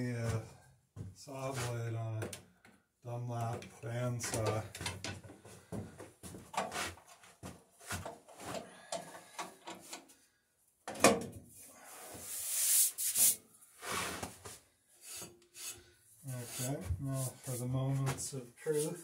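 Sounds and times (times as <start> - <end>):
metal cover banging shut: 10.9 - 11.3
metal covers knocking and clattering: 10.9 - 11.4
rubbing hiss: 12.2 - 14.0.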